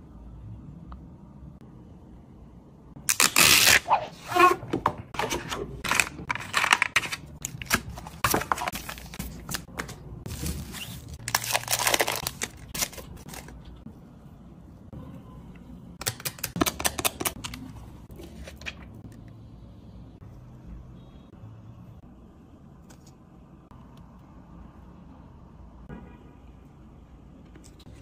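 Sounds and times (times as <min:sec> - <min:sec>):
plastic packaging crinkling: 0:05.8 - 0:13.8
sachet tearing: 0:10.3 - 0:13.6.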